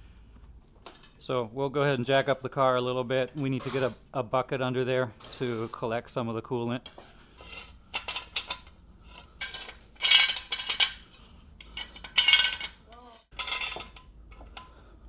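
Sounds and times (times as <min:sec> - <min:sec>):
metal jack clanking: 0:07.9 - 0:14.7.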